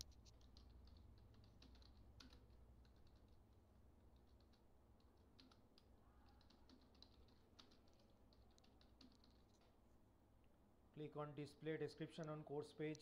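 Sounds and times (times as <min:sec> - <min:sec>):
faint keyboard typing: 0:00.0 - 0:09.8, 0:12.0 - 0:13.0.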